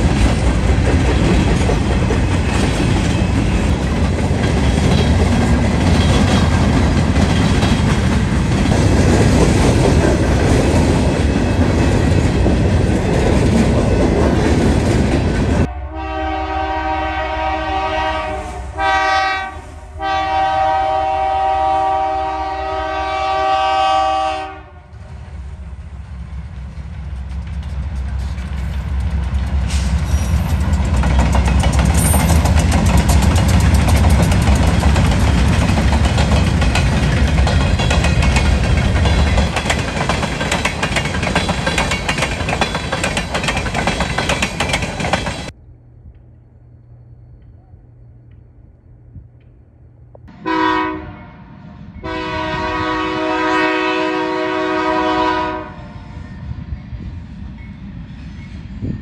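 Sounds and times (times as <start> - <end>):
freight train rumble and clickety-clack: 0.0 - 51.2, 51.9 - 59.0
locomotive air horn blasts: 15.7 - 25.1, 50.3 - 56.2.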